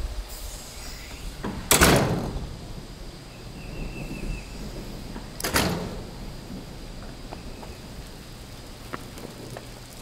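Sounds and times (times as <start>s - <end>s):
heavy door banging shut: 1.4s - 2.7s, 3.7s - 6.7s.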